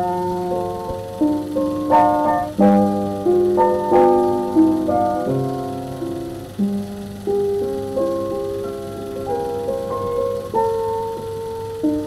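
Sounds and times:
slow keyboard melody: 0:00.0 - 0:12.0.

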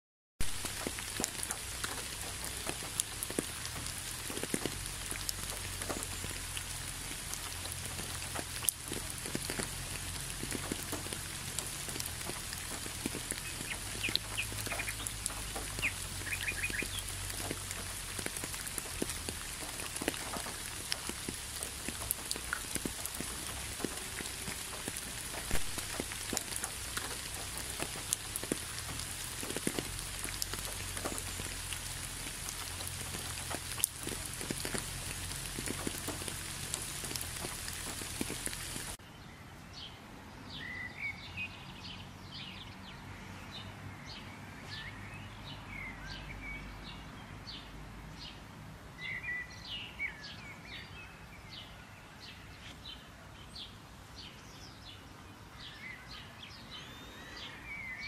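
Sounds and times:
steady rain falling: 0:00.4 - 0:39.0.

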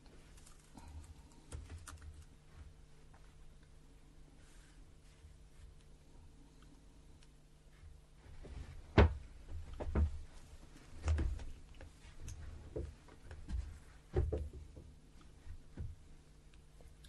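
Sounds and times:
soft knocks and bumps: 0:08.2 - 0:16.2.

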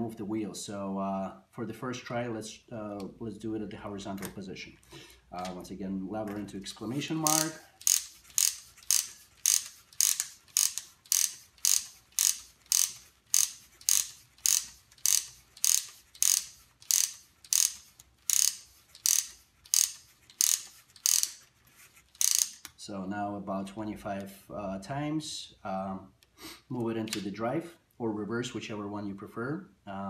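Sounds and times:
wooden ratchet clicking: 0:06.7 - 0:22.8.

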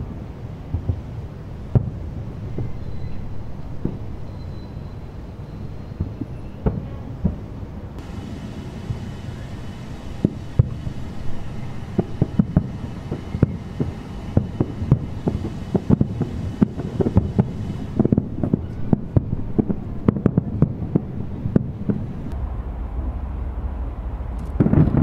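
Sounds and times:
fireworks booming: 0:00.0 - 0:25.0
low rumble: 0:08.0 - 0:25.0.

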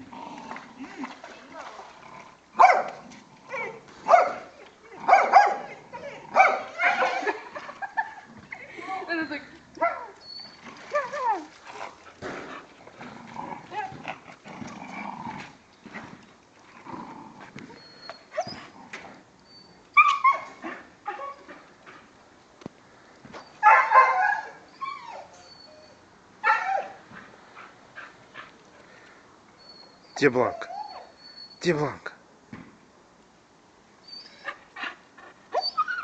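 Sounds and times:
dog barking and yelping: 0:02.6 - 0:07.4, 0:09.8 - 0:10.2, 0:20.0 - 0:21.5, 0:23.6 - 0:27.0.

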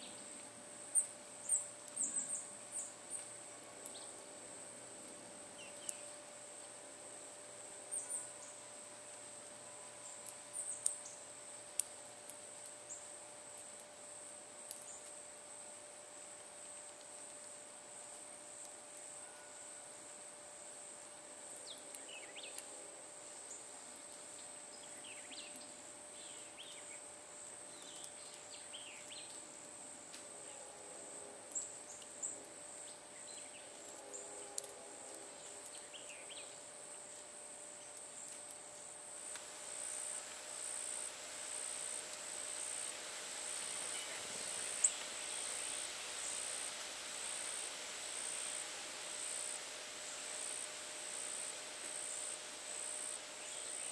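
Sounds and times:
faint bird chirps: 0:07.9 - 0:08.7, 0:43.7 - 0:46.4
high-pitched insect trill: 0:39.2 - 0:53.9.

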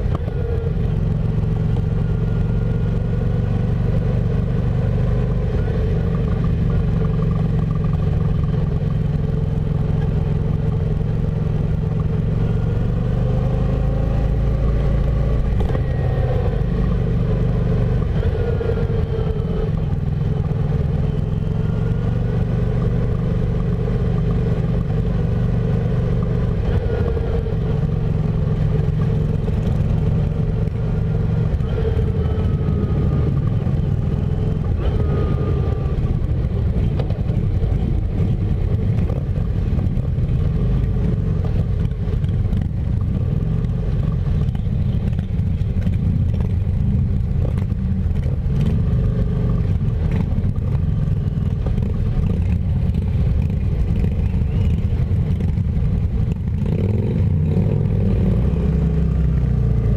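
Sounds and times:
motorcycle engine running: 0:00.0 - 0:59.9
motorcycles revving nearby: 0:00.0 - 0:59.9.

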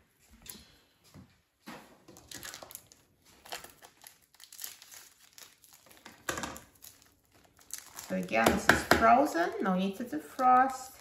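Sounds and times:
plastic packaging crinkling: 0:02.1 - 0:08.7, 0:10.1 - 0:11.0.

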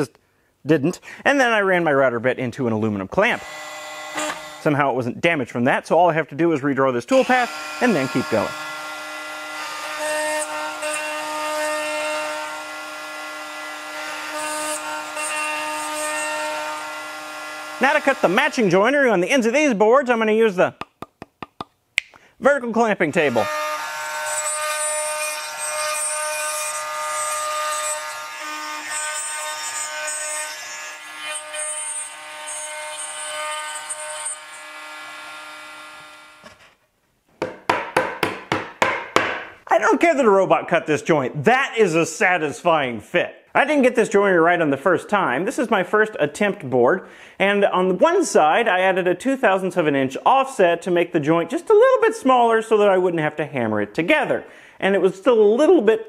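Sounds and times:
bit cutting wood: 0:03.4 - 0:04.7, 0:07.1 - 0:18.7, 0:23.2 - 0:36.7
router spindle whine: 0:07.2 - 0:10.9
mallet tapping wood: 0:37.4 - 0:39.5.

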